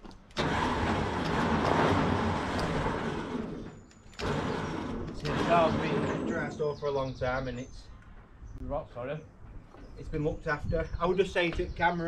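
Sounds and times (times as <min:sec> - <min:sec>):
electric winch motor running: 0:00.3 - 0:06.6.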